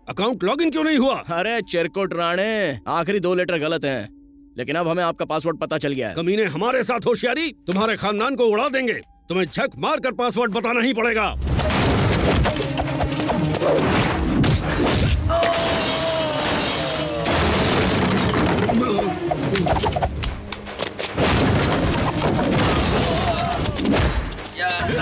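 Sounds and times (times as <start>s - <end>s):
action background music: 9.2s - 15.4s, 17.2s - 25.0s
loud crash: 11.4s - 12.6s.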